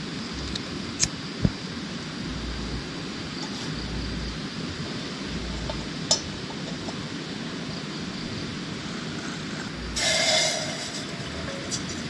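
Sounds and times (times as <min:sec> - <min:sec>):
outdoor background hiss: 0:00.0 - 0:12.0
water pouring into metal pot: 0:10.0 - 0:11.9.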